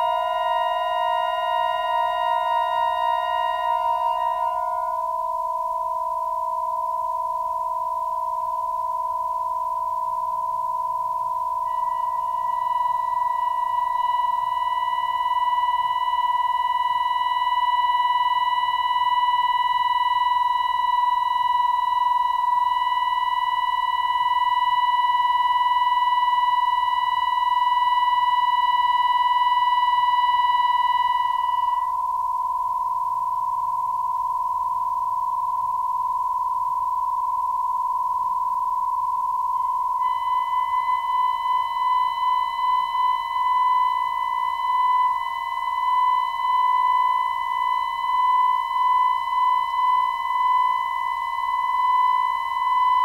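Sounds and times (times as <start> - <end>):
saxophone and electronic drone: 0.0 - 5.8, 11.6 - 15.2, 40.0 - 42.7.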